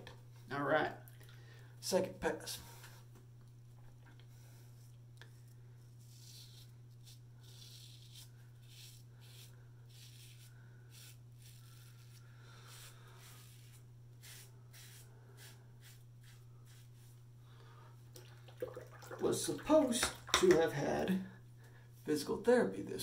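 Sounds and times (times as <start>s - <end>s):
low steady hum: 0.0s - 23.0s
razor scraping stubble: 6.0s - 17.2s.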